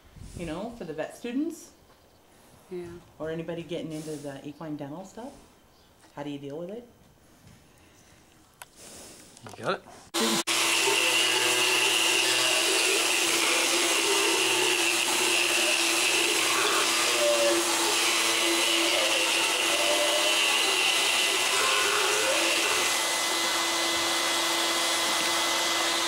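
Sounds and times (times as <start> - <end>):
motorized dental float whining: 10.2 - 26.0.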